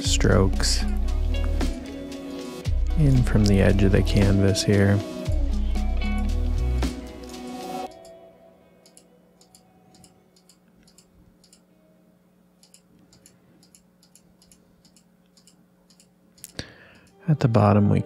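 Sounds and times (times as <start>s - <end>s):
computer mouse clicking: 8.8s - 11.6s, 12.6s - 17.1s.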